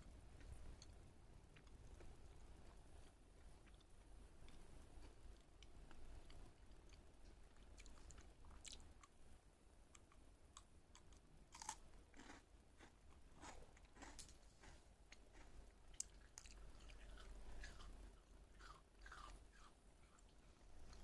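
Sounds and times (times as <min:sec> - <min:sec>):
dog crunching a treat: 0:18.6 - 0:20.2.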